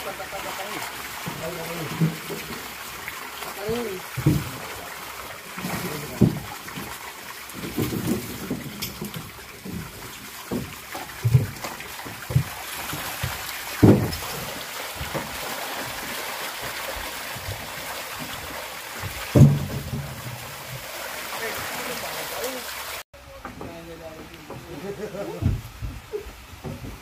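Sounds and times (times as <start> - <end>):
dull thumps: 7.6 - 15.4, 19.0 - 20.8, 25.3 - 27.0.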